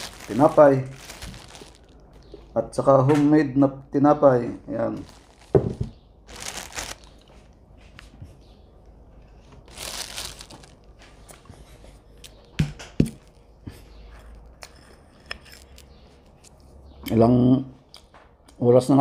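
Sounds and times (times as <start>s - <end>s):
crinkling rustle: 0.0s - 2.5s, 4.8s - 8.2s, 9.2s - 12.4s.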